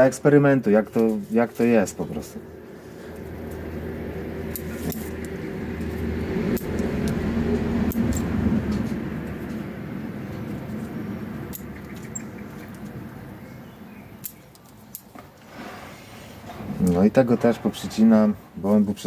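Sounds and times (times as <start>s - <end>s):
vehicle engine hum passing: 2.0s - 14.3s
scissors snipping: 4.5s - 8.9s.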